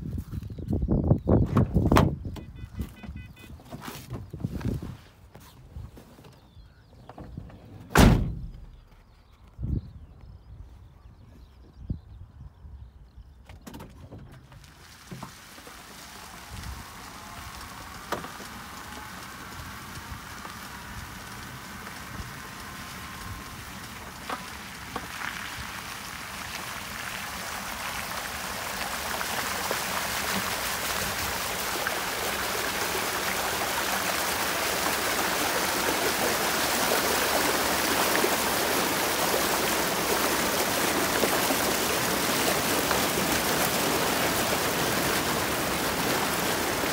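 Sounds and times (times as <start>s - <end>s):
water splashing off wheels: 14.4s - 46.9s.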